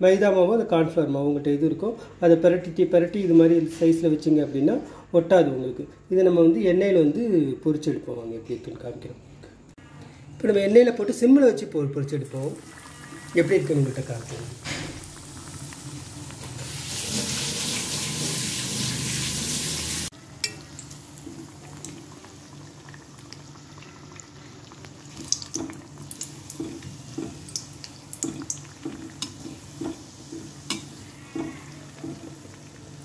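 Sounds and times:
dough deep-frying in hot oil: 0:12.4 - 0:33.0
steel spoon scraping a pan: 0:28.2 - 0:32.3.

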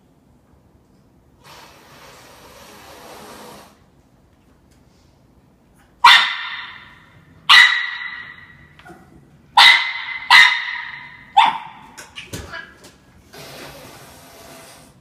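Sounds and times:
dog barking sharply: 0:06.0 - 0:08.5, 0:09.6 - 0:11.9.

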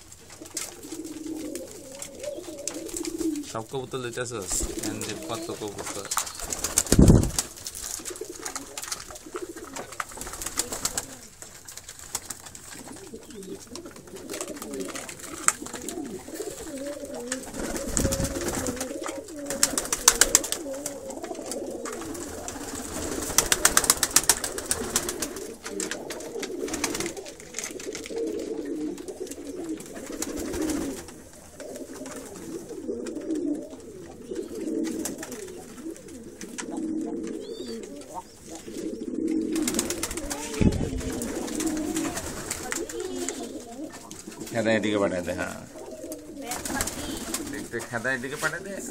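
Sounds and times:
pigeons cooing: 0:00.0 - 0:48.9.

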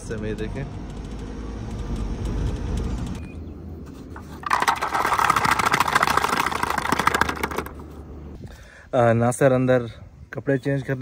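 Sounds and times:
moving car rumble: 0:00.0 - 0:08.4
snack packaging crinkling: 0:04.4 - 0:07.7.

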